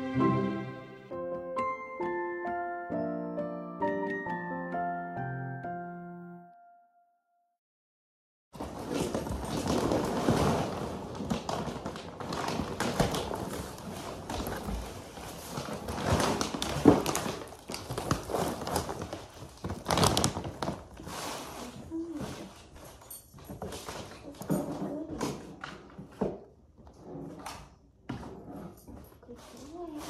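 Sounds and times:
cardboard box rustling and crinkling: 8.6 - 22.6
dog food bag crinkling: 8.7 - 22.2.

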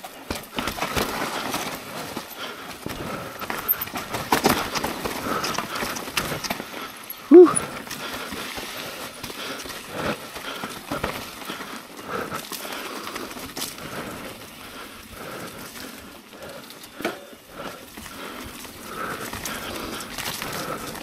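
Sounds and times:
bike rattling on rough trail: 0.0 - 21.0.

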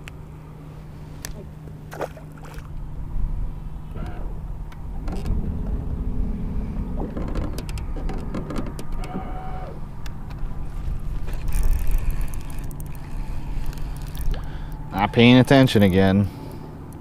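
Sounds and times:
faint electric whine: 0.0 - 17.0
wind rumbling on microphone: 1.2 - 15.8.

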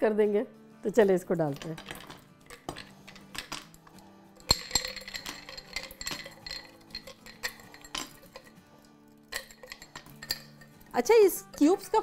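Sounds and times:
plastic ice cubes clinking: 1.6 - 3.8, 4.5 - 8.5.

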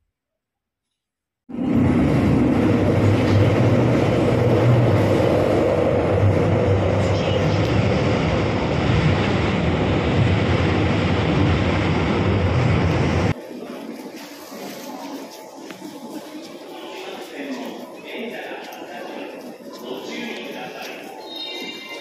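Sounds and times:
train rumbling on rails: 1.5 - 13.4.

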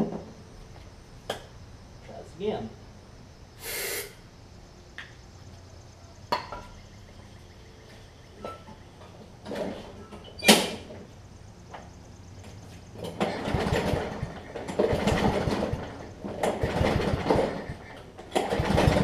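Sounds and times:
mower clunks and knocks: 8.4 - 11.1, 11.7 - 19.0
engine cranking without catching: 12.9 - 19.0.

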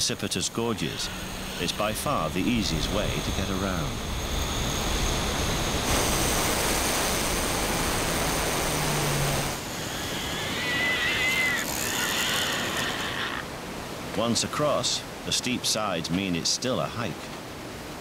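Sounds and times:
high wavering whine: 0.0 - 10.4
river rapids roaring: 0.0 - 18.0.

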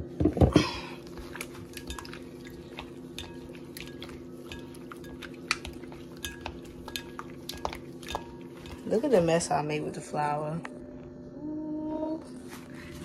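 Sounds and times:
taps and wet clicks on bowl: 1.7 - 8.8.

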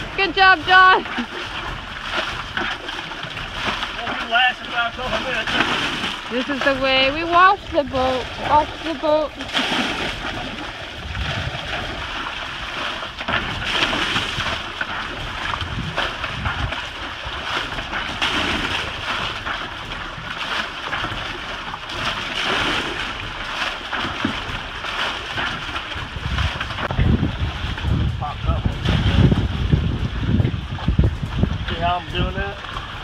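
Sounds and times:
water splashing and sloshing: 0.0 - 33.0
wind gusting on microphone: 5.0 - 20.3, 25.3 - 33.0.

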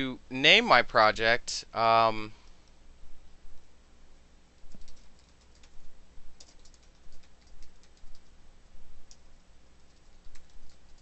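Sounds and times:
computer keyboard typing: 4.6 - 8.3, 9.0 - 11.0.

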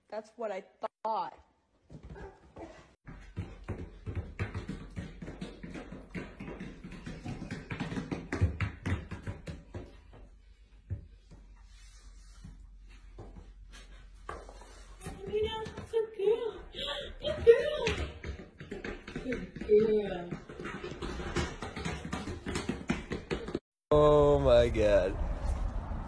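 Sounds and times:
dog footfalls on hard floor: 1.9 - 10.3, 17.2 - 23.6.

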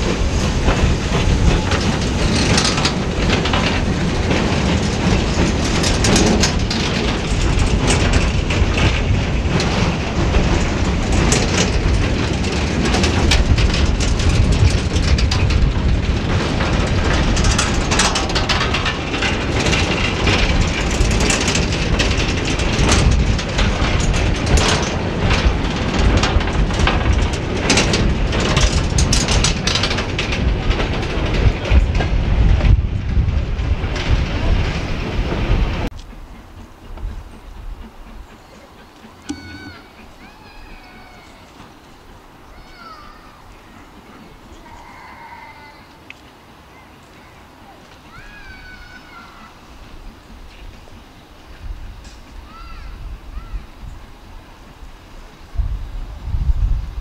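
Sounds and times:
couplings clicking and clanking: 0.0 - 37.2, 37.8 - 42.7
train wagons rumbling past: 0.0 - 57.0.

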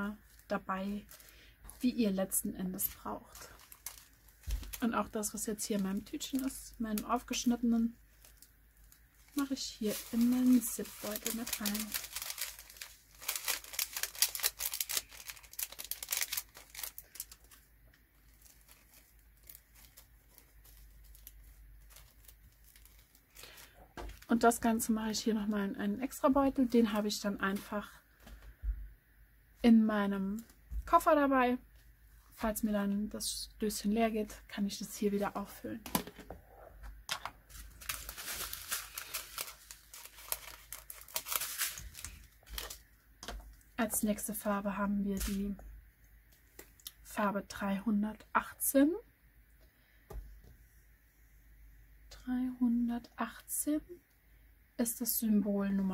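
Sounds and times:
plastic bag crinkling: 0.0 - 24.6, 37.2 - 43.5.

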